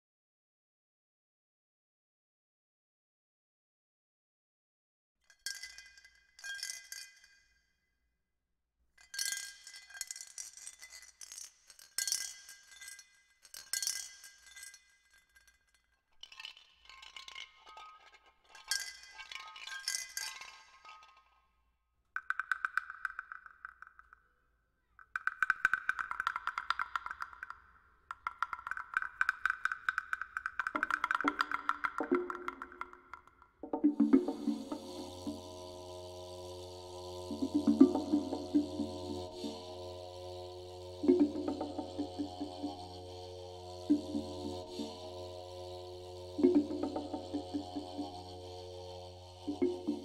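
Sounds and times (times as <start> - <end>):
metal jingling rattle: 9.0 - 21.3
rapid tapping of pitched percussion: 22.2 - 24.3, 25.0 - 50.0.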